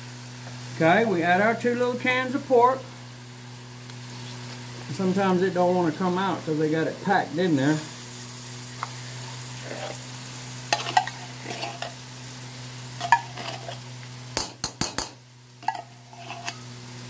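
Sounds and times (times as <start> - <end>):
meat sizzling in a wok: 0.0 - 17.0
metal spoon scraping wok: 9.6 - 10.1, 10.7 - 12.1, 13.0 - 13.9, 15.6 - 16.7
spoon tapping on wok: 14.4 - 15.9.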